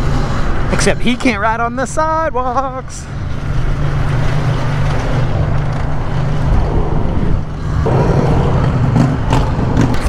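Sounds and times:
road noise: 0.0 - 10.0
wind rushing: 6.0 - 10.0.

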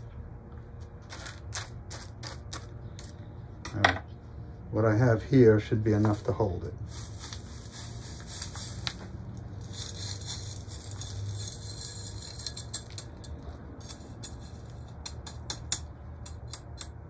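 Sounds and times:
gritty soil rustling and trickling: 5.8 - 12.6.

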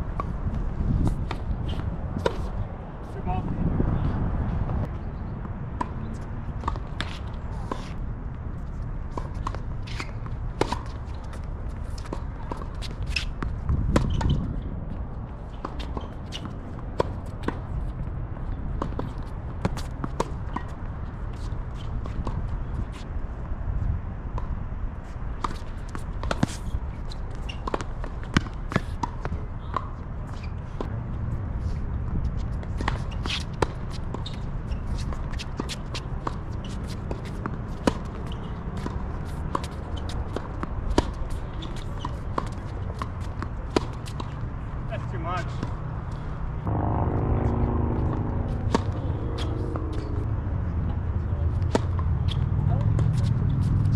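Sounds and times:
wind rumble on microphone: 0.0 - 6.7, 11.4 - 25.4, 29.1 - 35.2, 46.0 - 53.9
tennis ball hits and bounces: 5.4 - 8.0, 9.1 - 14.6, 18.5 - 20.8, 25.4 - 31.0, 32.6 - 50.3, 51.6 - 53.7
tennis ball struck and bouncing: 46.6 - 50.3.

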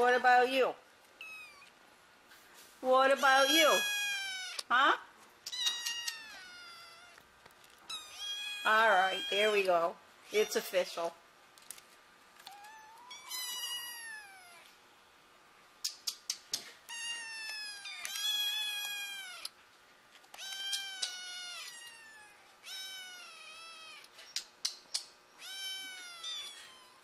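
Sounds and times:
kittens meowing: 3.2 - 4.6, 5.5 - 7.2, 7.8 - 9.7, 12.4 - 14.7, 16.9 - 19.5, 20.4 - 24.1, 25.4 - 27.0
sharp clicks: 15.8 - 16.7, 24.3 - 25.2.

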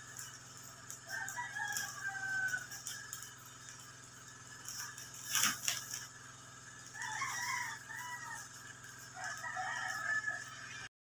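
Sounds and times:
rooster crowing: 0.9 - 3.4, 6.8 - 10.9.

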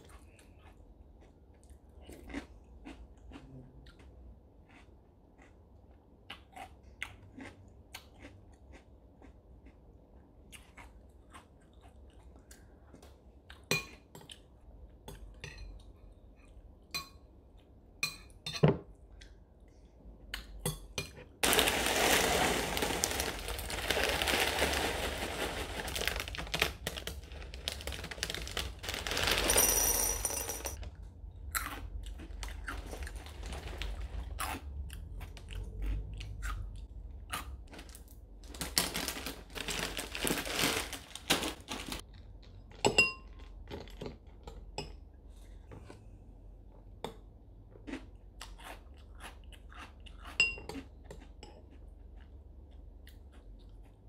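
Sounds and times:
plastic bag crinkling: 21.4 - 30.8, 32.8 - 34.4, 37.7 - 42.0.

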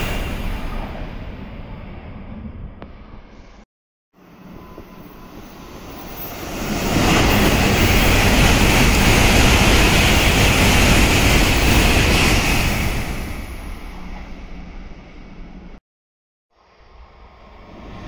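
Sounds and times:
train passing at speed: 0.0 - 2.6, 4.2 - 15.8, 16.6 - 18.0.

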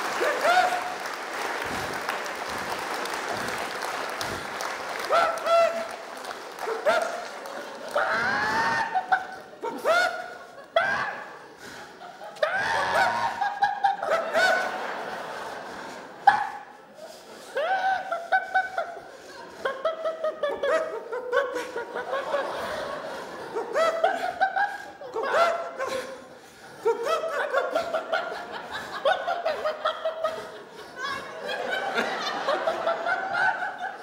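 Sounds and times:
high-pitched laughing: 0.1 - 1.8, 5.0 - 6.0, 6.6 - 11.4.

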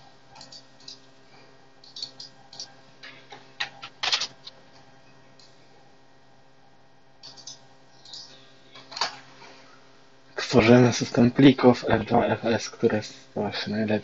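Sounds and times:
faint steady hum: 0.0 - 14.0
mouse clicks: 1.8 - 2.7
keyboard keystrokes: 7.2 - 9.1.

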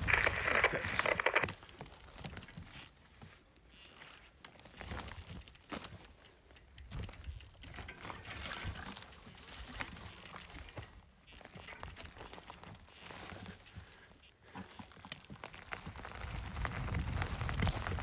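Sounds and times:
clicks and crackles: 0.0 - 2.9
bike tyres crunching on gravel: 0.0 - 18.0.

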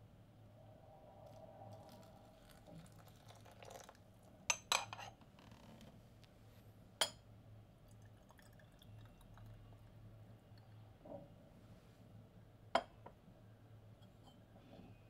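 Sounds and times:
hot water pouring onto tea leaves: 1.2 - 4.3, 7.9 - 9.8.

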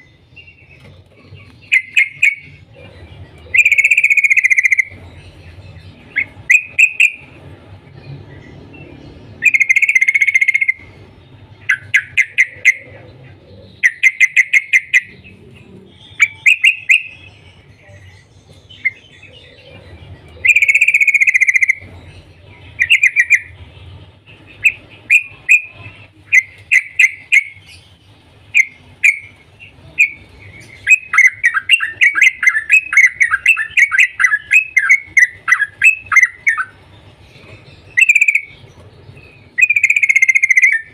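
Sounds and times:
bulbul chirping: 0.7 - 5.1, 5.8 - 7.4, 9.4 - 10.9, 11.6 - 15.4, 16.0 - 17.6, 20.4 - 22.0, 22.6 - 23.6, 24.3 - 40.9.

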